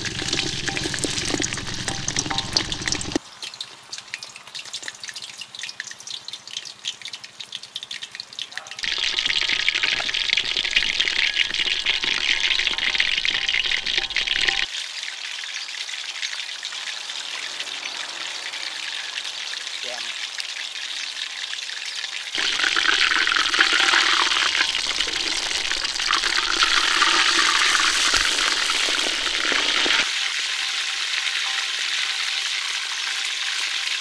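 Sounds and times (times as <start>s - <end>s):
food sizzling in hot oil: 0.0s - 34.0s.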